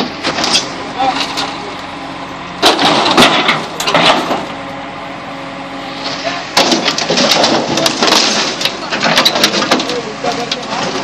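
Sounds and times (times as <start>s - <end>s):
backhoe engine running: 0.0s - 11.0s
metal body crunching and cracking: 2.6s - 4.5s, 6.6s - 11.0s.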